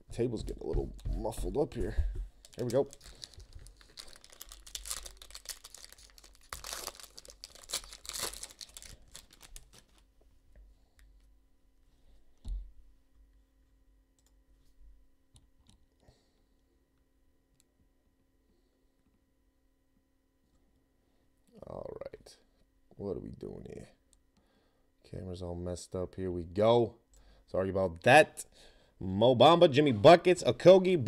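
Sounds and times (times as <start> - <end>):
foil wrapper tearing and crinkling: 2.4 - 10.0.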